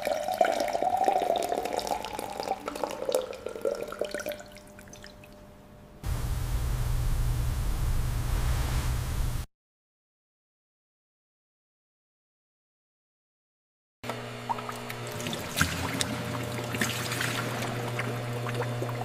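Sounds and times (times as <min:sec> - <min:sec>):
wine pouring into glass: 0:00.0 - 0:05.1
steady low hum: 0:05.7 - 0:09.5.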